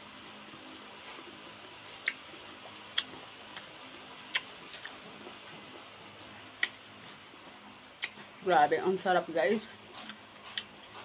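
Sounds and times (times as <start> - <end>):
faint steady hum: 0.0 - 11.0
mouth clicks while chewing: 2.0 - 5.0, 6.6 - 7.2, 8.0 - 8.2, 10.0 - 10.8.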